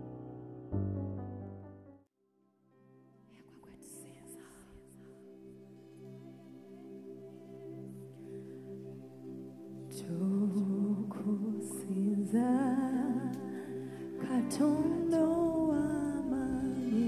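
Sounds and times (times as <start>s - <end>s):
sustained backing chords: 0.0s - 2.0s, 5.3s - 17.0s
woman singing into a microphone: 9.9s - 17.0s.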